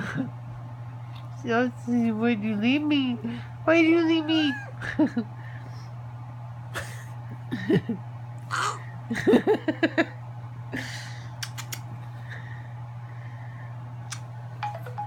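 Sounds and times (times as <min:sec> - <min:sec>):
steady low hum: 0:00.0 - 0:15.0
small dog whimpering: 0:04.0 - 0:04.8
sharp clicks: 0:11.4 - 0:11.9.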